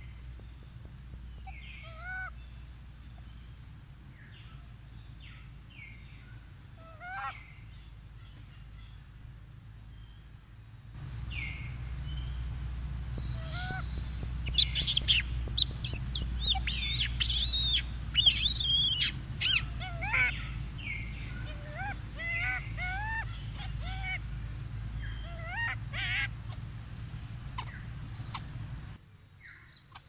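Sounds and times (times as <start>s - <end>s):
low steady rumble: 0.0s - 30.0s
monkeys chirping and squeaking: 1.4s - 2.3s, 6.8s - 7.4s, 13.2s - 29.0s.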